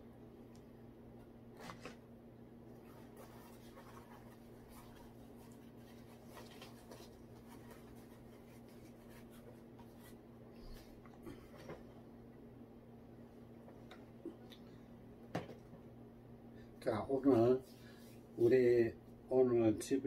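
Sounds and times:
steady low hum: 0.0s - 20.0s
cloth rustling: 2.8s - 12.0s.

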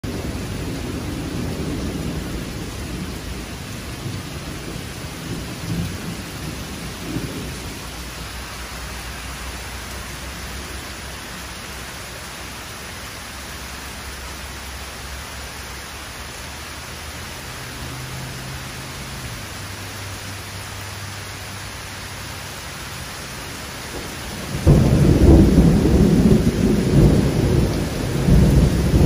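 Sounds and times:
low rumble of thunder: 0.0s - 8.6s, 23.8s - 29.0s
heavy rain pouring: 0.0s - 29.0s.

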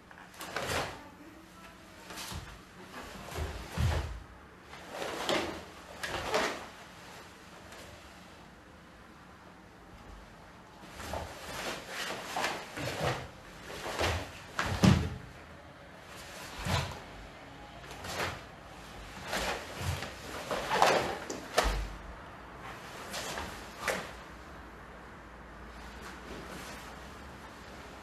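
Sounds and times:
cloth snapping and swishing: 19.1s - 21.9s.

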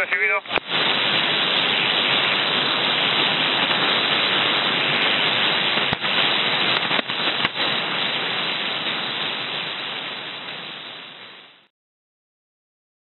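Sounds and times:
radio static hiss: 0.0s - 11.7s.

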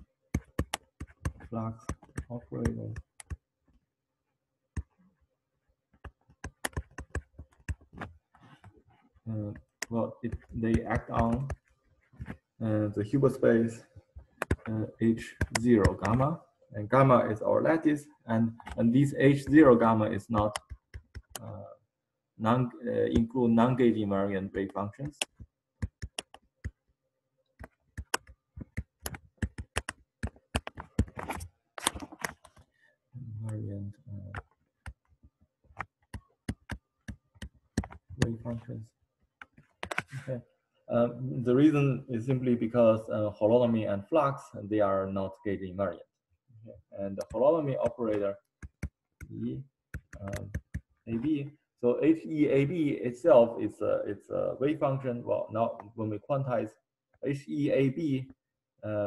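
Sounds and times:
stylus tapping on pen tablet: 0.3s - 3.5s, 5.9s - 8.2s, 14.2s - 14.7s, 15.4s - 16.2s, 20.4s - 21.4s, 25.0s - 26.8s, 27.6s - 32.6s, 34.3s - 38.3s, 39.4s - 40.1s, 47.2s - 49.3s, 49.9s - 50.9s.

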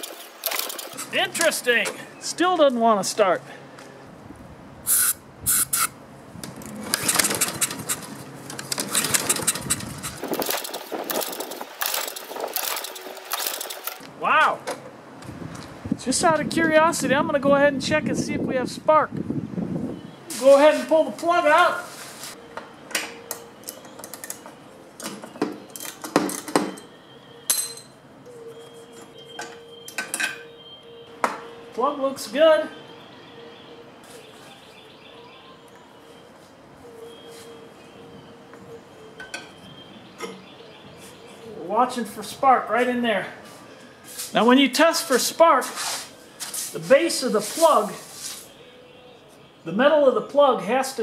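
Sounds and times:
engine cranking with clatter: 0.0s - 1.2s, 6.6s - 14.1s
spray can hissing: 4.9s - 5.9s
metal sockets clinking: 22.9s - 28.0s.

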